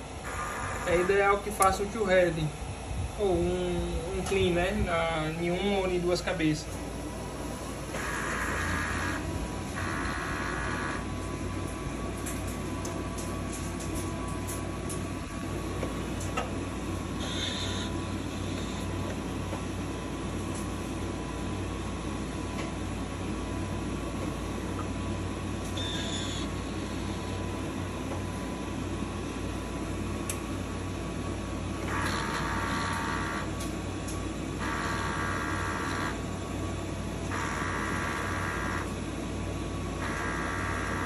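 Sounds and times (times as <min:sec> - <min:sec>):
printer machine hum: 0:00.0 - 0:41.0
motor whirring: 0:07.9 - 0:09.2.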